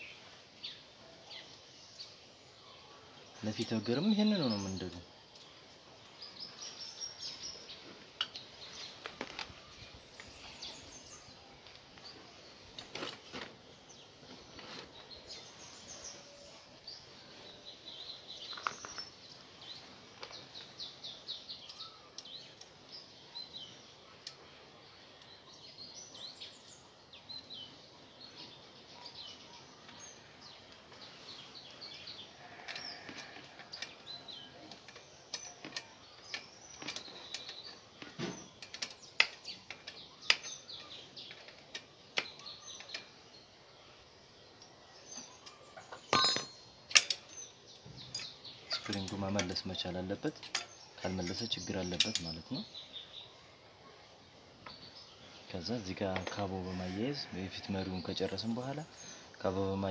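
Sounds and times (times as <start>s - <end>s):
small birds chirping: 0.0s - 59.9s
metal bicycle clicks and knocks: 38.3s - 40.6s, 46.1s - 47.4s.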